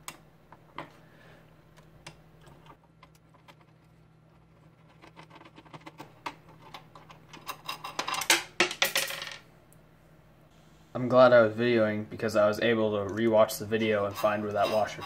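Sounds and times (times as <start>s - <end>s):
screwdriver and metal parts clicking: 13.1s - 15.0s
metal washer bouncing and clinking: 13.8s - 15.0s.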